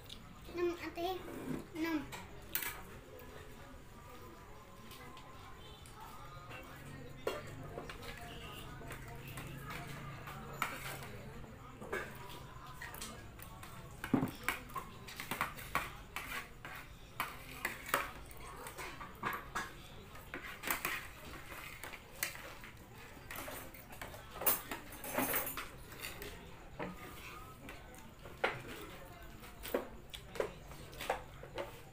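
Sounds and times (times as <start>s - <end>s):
cutlery clinking on plastic plates: 6.6s - 31.9s.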